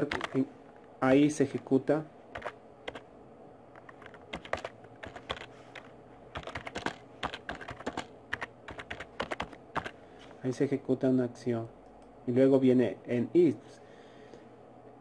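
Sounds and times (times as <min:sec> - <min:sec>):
computer keyboard typing: 0:00.0 - 0:00.5, 0:02.3 - 0:03.1, 0:03.7 - 0:10.0.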